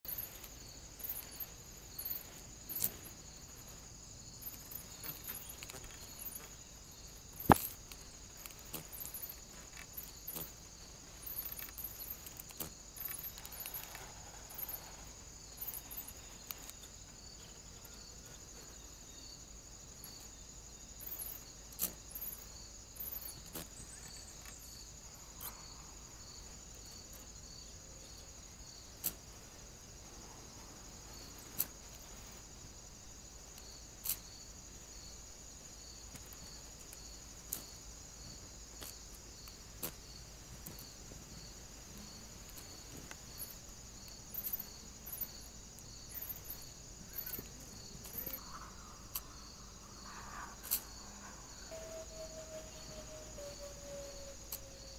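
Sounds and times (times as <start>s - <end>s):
steady high hiss: 0.0s - 54.9s
faint bird chirps: 46.0s - 54.9s.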